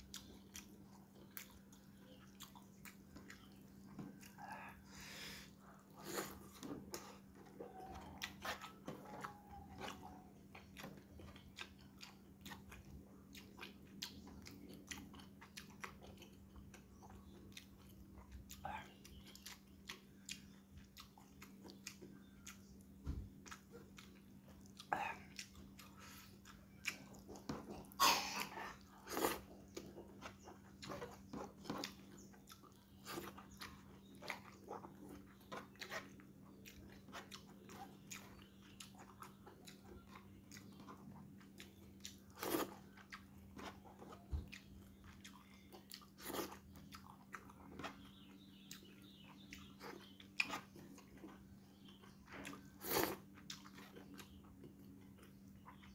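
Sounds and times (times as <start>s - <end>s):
faint steady hum: 0.0s - 55.9s
man chewing and smacking: 0.0s - 55.9s.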